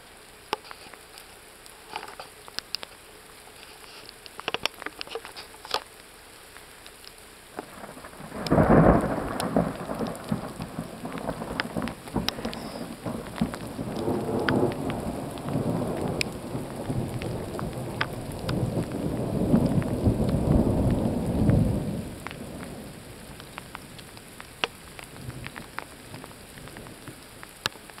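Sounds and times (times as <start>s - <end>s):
faint ticks: 0.3s - 22.8s, 23.4s - 28.0s
thunder clap and rumble: 7.6s - 27.2s.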